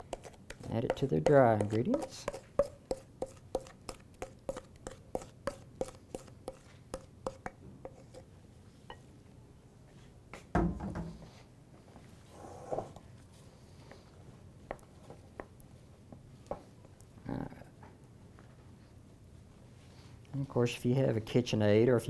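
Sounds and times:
utensil knocking in metal bowl: 0.0s - 7.6s
batter being scraped: 0.0s - 8.2s.

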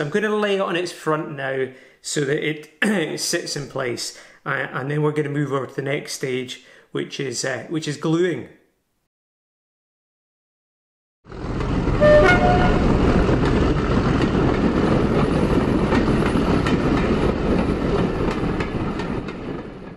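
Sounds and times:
train running noise: 11.3s - 19.9s
two-note train horn toot: 12.0s - 13.1s.

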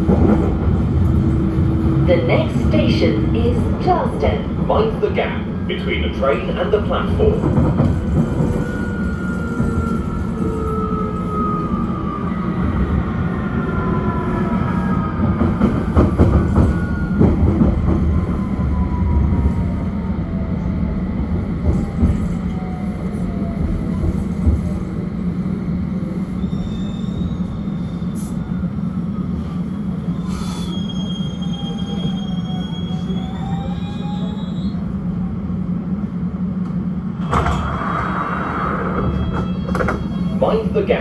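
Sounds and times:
wheels rumbling on rail: 0.0s - 41.0s
train clattering: 2.1s - 10.5s, 15.2s - 18.2s
high brake squeal: 26.4s - 28.4s, 30.2s - 34.8s.

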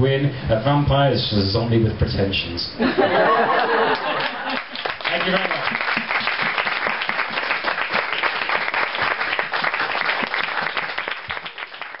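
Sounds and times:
audience applauding: 3.5s - 12.0s.

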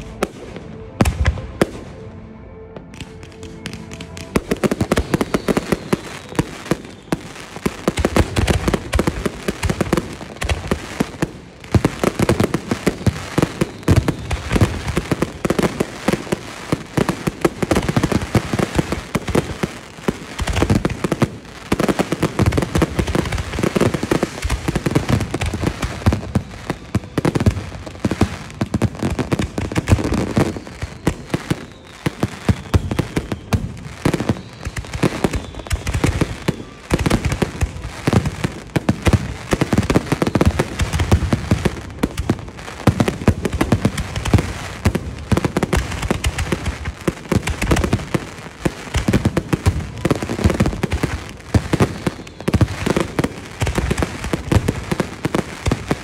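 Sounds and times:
fireworks bursting: 2.8s - 56.0s.

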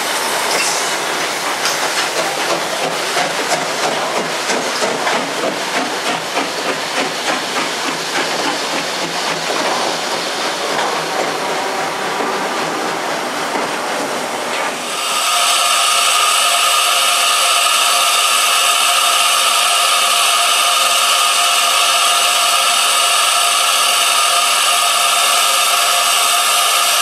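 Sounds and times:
train wheels clicking over rail joints: 0.0s - 15.7s
diesel locomotive rolling: 0.0s - 27.0s
steam locomotive hissing: 0.0s - 27.0s.

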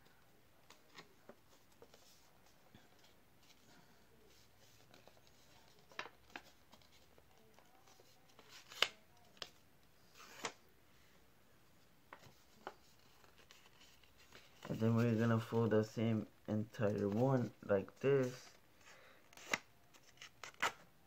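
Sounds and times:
paper rustling and creasing: 12.1s - 15.5s.

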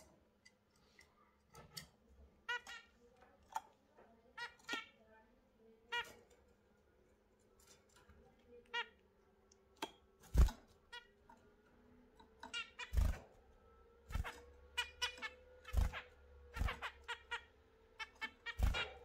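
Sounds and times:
birds thumping on cage perches: 9.8s - 10.8s, 18.2s - 19.0s
finches nasal calls: 14.1s - 19.0s.

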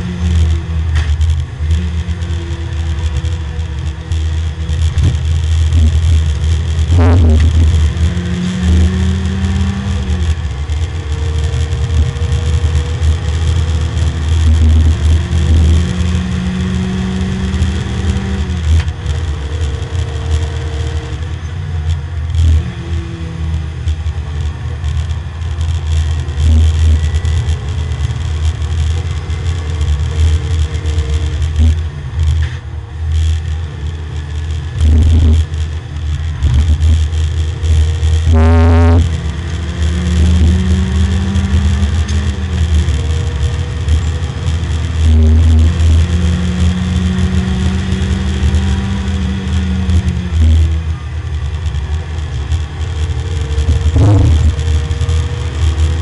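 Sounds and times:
race car engine running hard: 0.0s - 56.0s
road and wind noise: 0.0s - 56.0s.

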